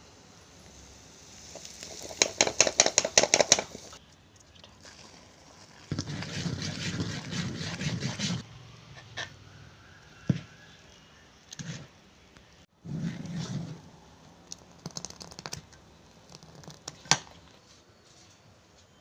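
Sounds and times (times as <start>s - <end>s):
spoon stirring thick batter: 4.7s - 8.4s.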